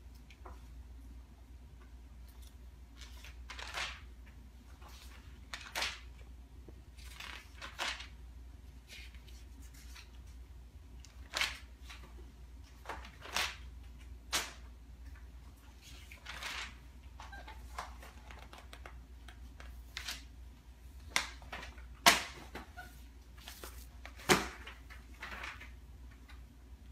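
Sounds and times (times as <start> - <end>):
low room hum: 0.0 - 26.9
magazine pages turning: 3.0 - 4.1, 4.8 - 6.2, 6.9 - 8.2, 15.7 - 20.3, 23.4 - 26.4.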